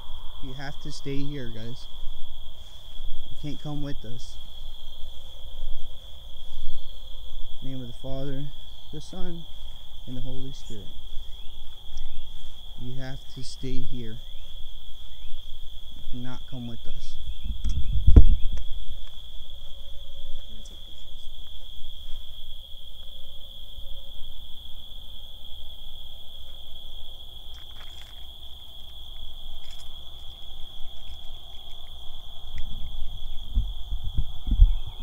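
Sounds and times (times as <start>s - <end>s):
crickets chirping: 0.0s - 35.0s.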